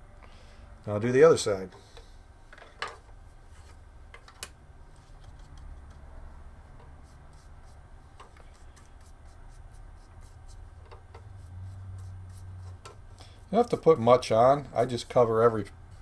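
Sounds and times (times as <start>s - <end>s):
low steady hum: 0.0s - 16.0s
brush scratching on plastic: 6.9s - 7.8s, 8.4s - 16.0s.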